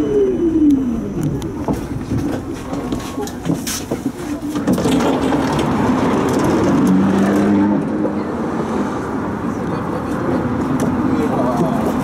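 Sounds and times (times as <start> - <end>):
tram hum: 0.0 - 12.0
tram body clicking and rattling: 1.2 - 8.3.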